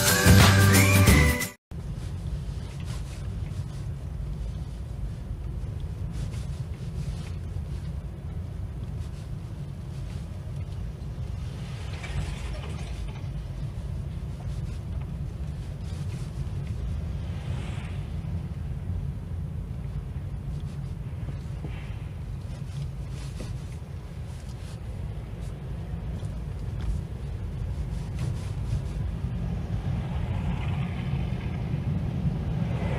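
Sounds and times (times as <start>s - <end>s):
car engine and tyre rumble: 1.7s - 32.9s
oncoming vehicles passing: 10.9s - 14.2s, 16.6s - 20.3s, 29.1s - 32.9s.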